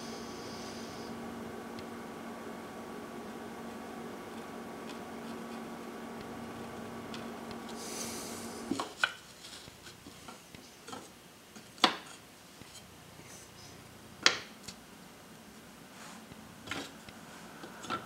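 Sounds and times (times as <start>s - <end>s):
steady hum: 0.0s - 9.0s, 12.6s - 18.0s.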